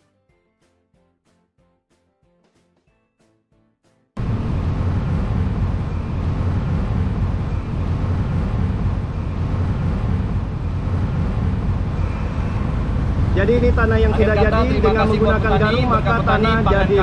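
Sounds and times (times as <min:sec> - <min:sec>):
diesel engine running under load: 0:04.2 - 0:17.0.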